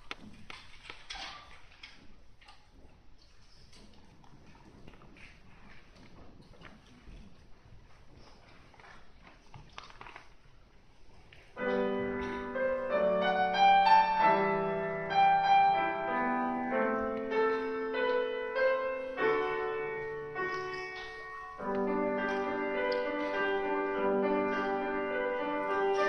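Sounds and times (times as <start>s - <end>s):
faint hall noise: 0.0s - 26.0s
grand piano solo: 11.6s - 26.0s.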